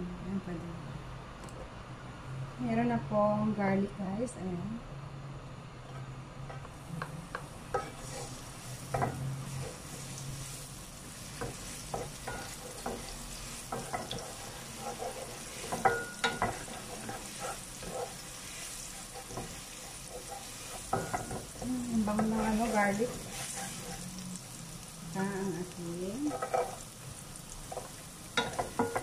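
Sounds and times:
garlic sizzling in hot oil: 6.9 - 29.0
wooden spatula scraping a pan: 7.7 - 10.6, 11.2 - 24.2, 26.2 - 26.8.

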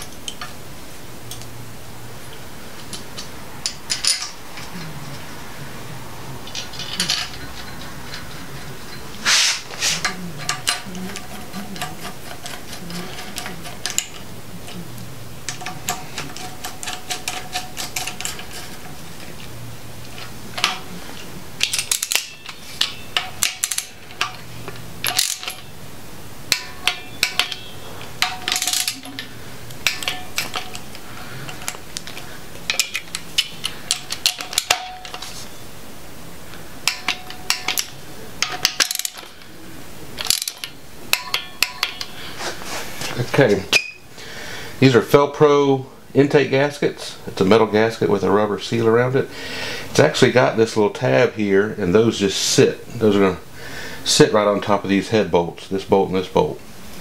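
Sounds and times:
steady low hum: 0.0 - 57.0
tools clinking against metal: 2.8 - 5.2, 6.4 - 19.5, 20.1 - 25.8, 26.5 - 35.6, 36.5 - 39.5, 40.2 - 44.0
socket ratchet clicking: 15.4 - 19.0, 21.6 - 25.7, 26.5 - 35.4.

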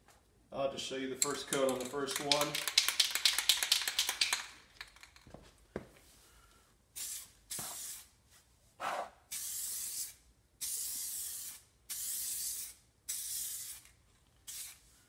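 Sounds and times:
aerosol paint can spraying: 7.0 - 8.1, 9.3 - 14.8.

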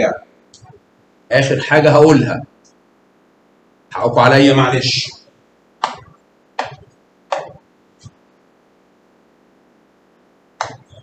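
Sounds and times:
short sharp taps: 5.8 - 8.2.

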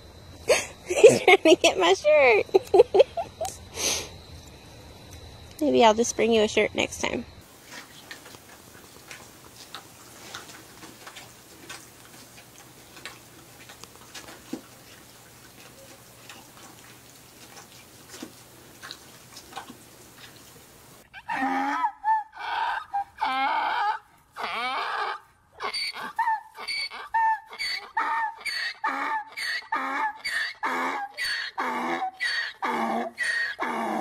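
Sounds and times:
donkeys nibbling feed clicks: 7.6 - 21.0
donkey braying: 21.1 - 34.0.

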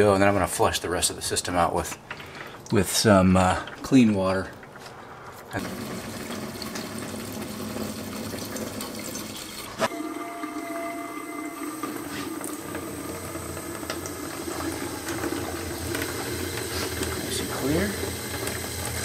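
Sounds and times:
thin stream of water draining: 5.6 - 19.0
water being poured: 5.6 - 19.0.

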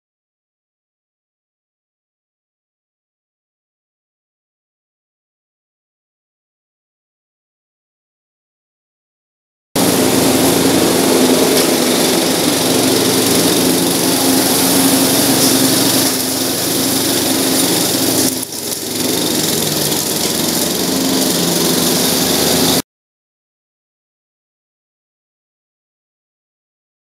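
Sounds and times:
riding lawn mower engine: 9.8 - 22.8.

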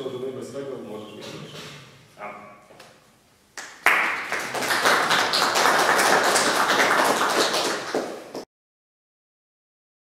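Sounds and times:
audience applauding: 3.6 - 8.4.

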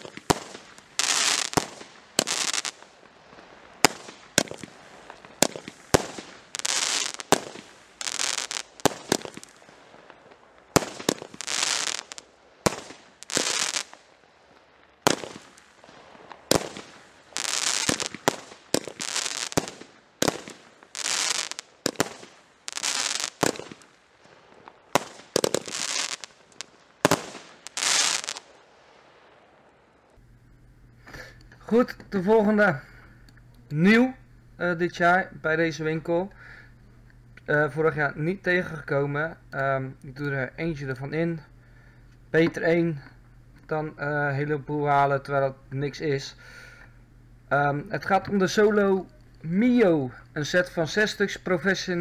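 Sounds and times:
fireworks bangs: 0.0 - 30.1.

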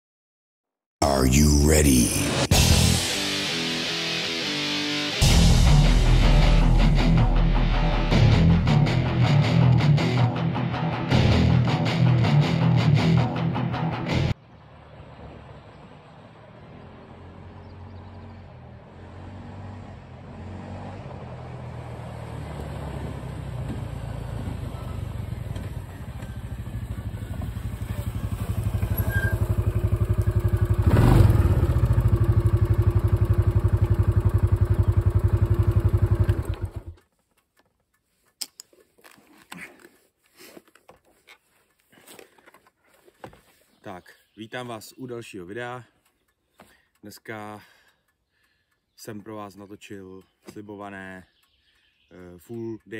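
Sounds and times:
quad bike engine: 14.7 - 37.1
faint clicks: 46.0 - 47.1.

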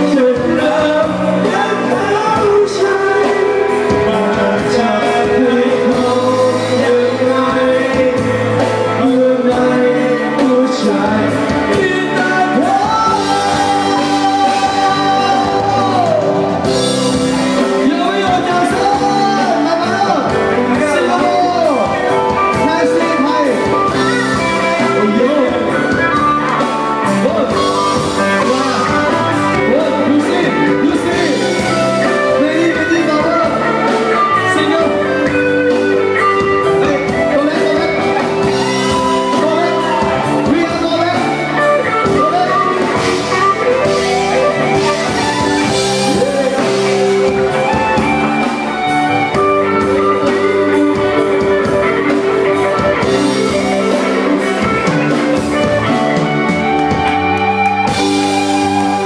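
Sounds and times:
men singing into microphones: 0.0 - 16.8
loud music: 0.0 - 59.0.

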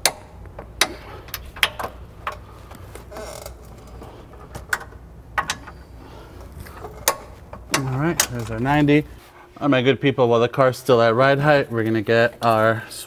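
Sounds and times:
short creak: 3.0 - 4.1.

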